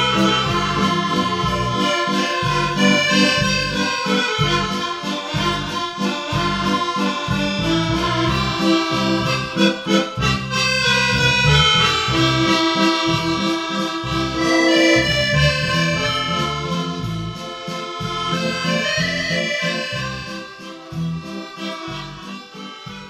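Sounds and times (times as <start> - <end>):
accordion playing chords and melody: 0.0 - 23.0
backing beat and bass line: 0.0 - 23.0.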